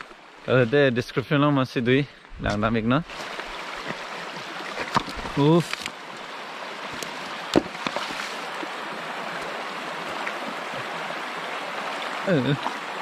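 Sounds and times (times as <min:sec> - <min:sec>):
stream running over rocks: 0:00.0 - 0:13.0
sharp knocks: 0:07.5 - 0:08.0.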